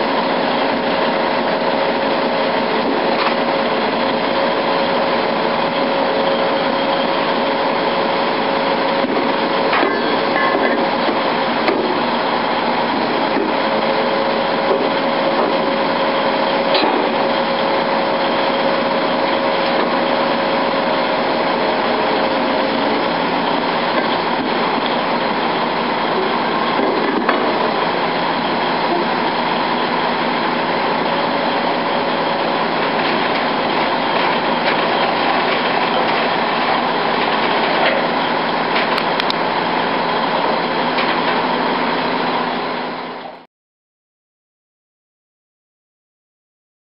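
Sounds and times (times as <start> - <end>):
diesel engine and hydraulic pumps: 0.0 - 43.5
steady whine: 0.0 - 43.5.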